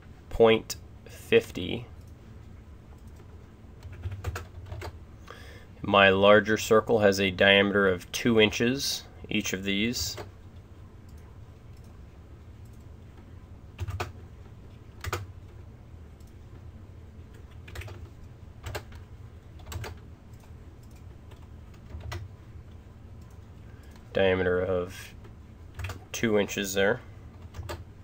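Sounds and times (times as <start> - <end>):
low steady hum: 0.0 - 28.0
keyboard keystrokes: 17.5 - 19.0.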